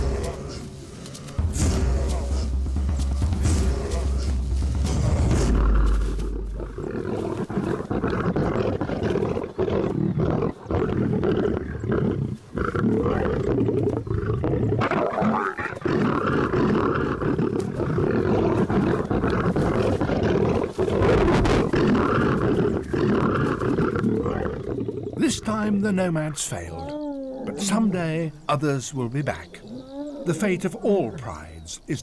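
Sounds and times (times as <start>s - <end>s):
lions roaring: 4.9s - 25.2s, 26.5s - 28.5s, 29.6s - 31.5s.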